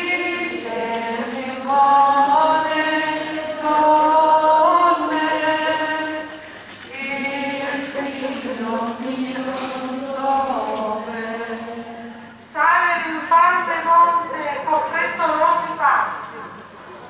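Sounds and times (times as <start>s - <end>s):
voices singing a hymn in unison: 0.0s - 12.4s.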